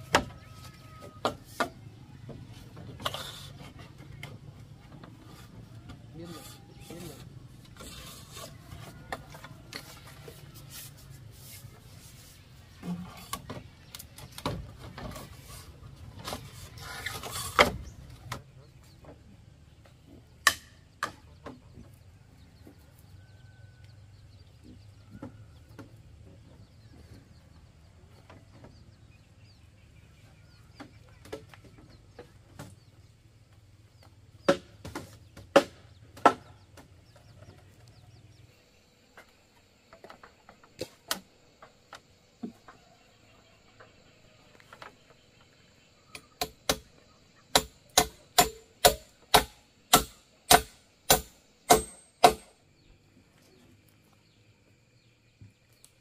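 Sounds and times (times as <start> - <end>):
hand tool striking timber: 20.4 - 21.2, 34.5 - 36.6, 46.4 - 46.9, 47.5 - 52.5.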